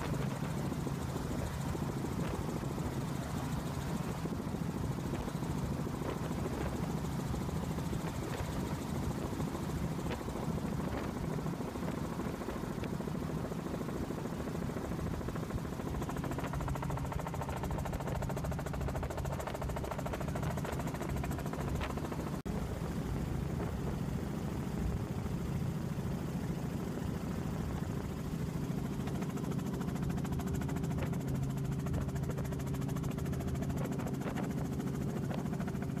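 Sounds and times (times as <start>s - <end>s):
helicopter engine and rotor humming: 0.0s - 36.0s.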